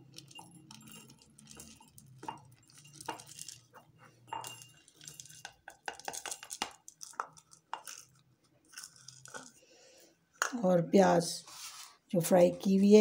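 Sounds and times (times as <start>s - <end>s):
seeds rattling into glass jar: 0.0s - 9.6s.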